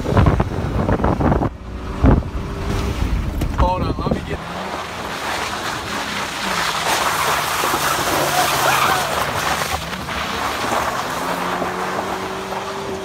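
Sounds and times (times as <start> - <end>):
truck engine revving high: 0.0 - 13.0
wheels spinning on wet gravel: 3.6 - 13.0.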